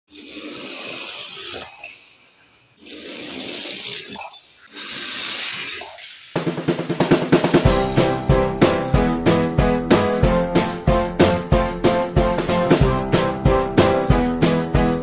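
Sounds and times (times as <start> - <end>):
toy cars rolling on floor: 0.1 - 6.4
drum music: 6.4 - 15.0.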